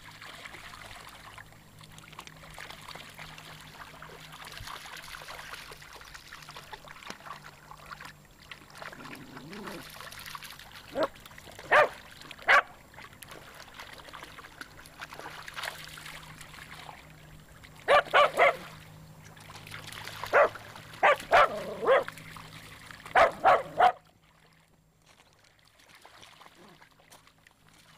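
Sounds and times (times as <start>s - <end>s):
lapping lake water: 0.0s - 27.9s
dog barking: 11.7s - 12.7s, 17.9s - 18.6s, 20.3s - 22.1s, 23.2s - 24.0s.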